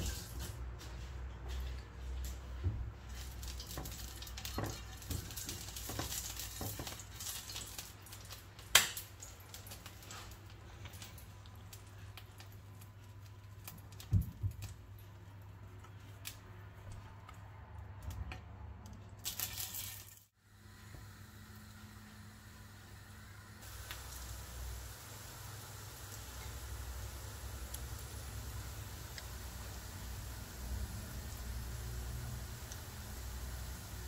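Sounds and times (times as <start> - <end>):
oil sizzling in a pan: 3.1 - 10.3, 19.3 - 34.0.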